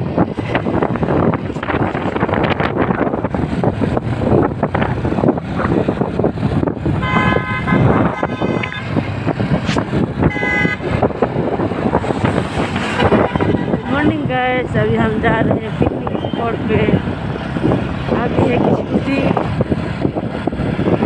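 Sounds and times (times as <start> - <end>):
motorbike engine and wind: 0.0 - 21.0
vehicle horn tooting: 7.0 - 9.0, 10.2 - 10.9, 12.9 - 13.9.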